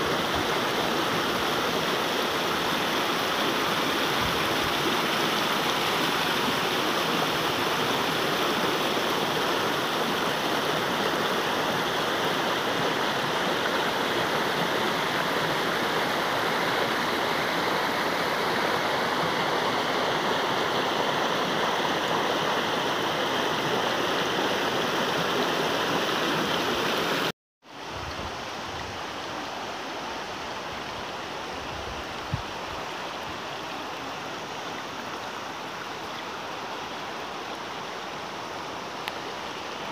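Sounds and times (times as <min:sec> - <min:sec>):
running river water: 0:00.0 - 0:39.9
faint click: 0:39.0 - 0:39.2.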